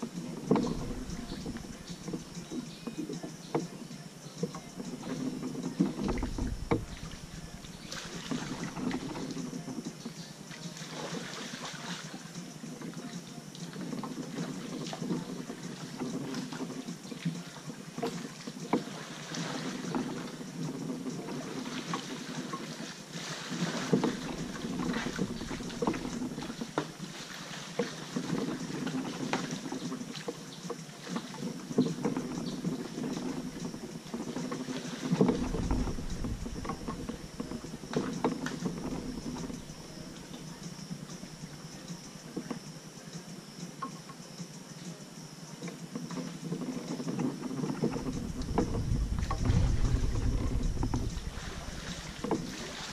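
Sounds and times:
wind rumble on microphone: 0:00.0 - 0:03.7, 0:04.5 - 0:10.2, 0:23.7 - 0:27.0, 0:31.8 - 0:42.4, 0:46.4 - 0:52.9
paddle strokes with splashes: 0:00.0 - 0:52.9
small knocks and drips: 0:00.0 - 0:52.9.

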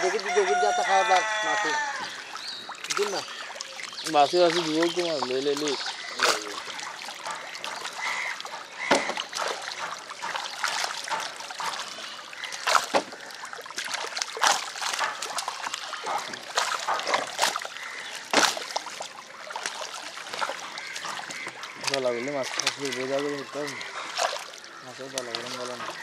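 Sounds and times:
fish splashing at water surface: 0:00.0 - 0:26.0.

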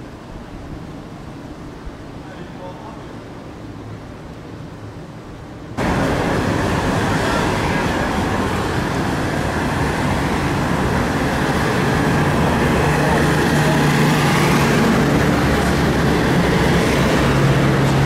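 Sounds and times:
minibus engine hum: 0:03.4 - 0:18.0
cars passing: 0:05.8 - 0:18.0.

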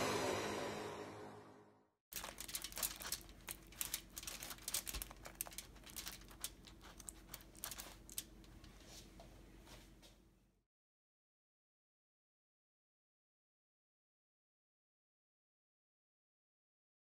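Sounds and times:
spoon scraping on tortilla: 0:02.2 - 0:08.7.

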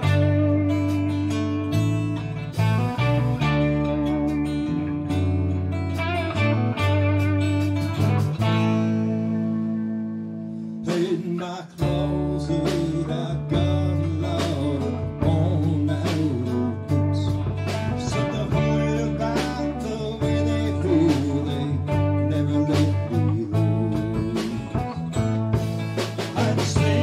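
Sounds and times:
electric bass line: 0:00.0 - 0:27.0
electric guitars: 0:00.0 - 0:27.0
drum hits: 0:24.2 - 0:27.0.

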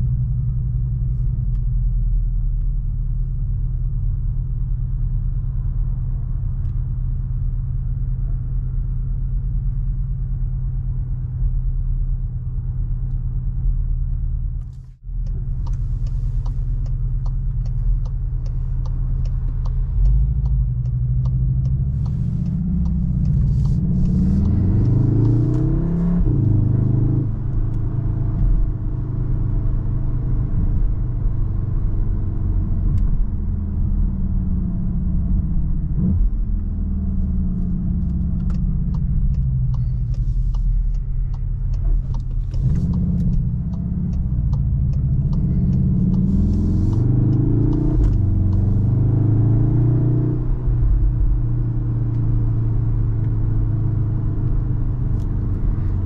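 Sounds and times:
car engine accelerating: 0:00.0 - 0:56.0
gear upshift: 0:14.6 - 0:29.5, 0:31.7 - 0:56.0.

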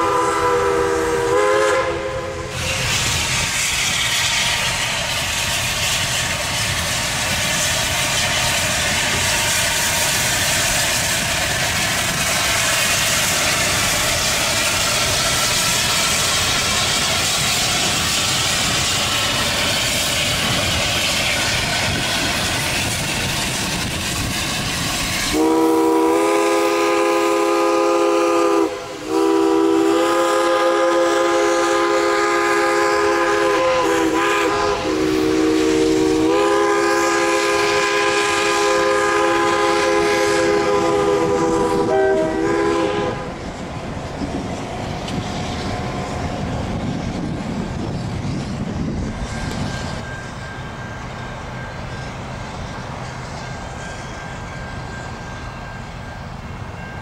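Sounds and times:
train whistle: 0:00.0 - 0:20.6, 0:21.2 - 0:43.5
train wheels rushing on rails: 0:00.0 - 0:57.0.

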